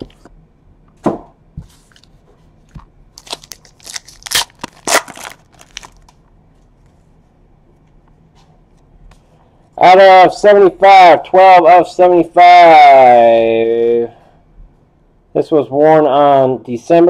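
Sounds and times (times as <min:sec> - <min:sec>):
foil wrapper tearing and crinkling: 0:03.2 - 0:06.2.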